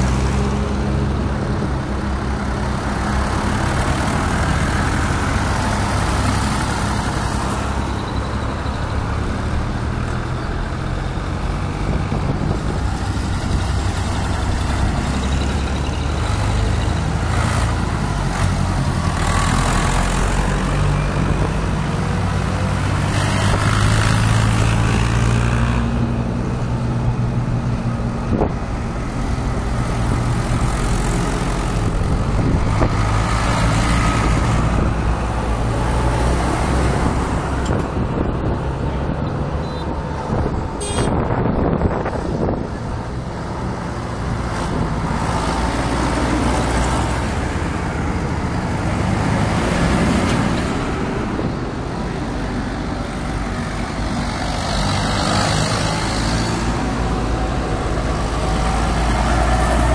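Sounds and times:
tractor engines driving past: 0:00.0 - 0:59.9.

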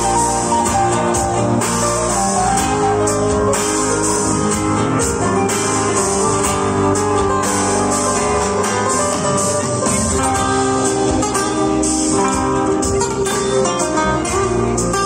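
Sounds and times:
drums: 0:00.0 - 0:15.0
electric guitars: 0:00.0 - 0:15.0.

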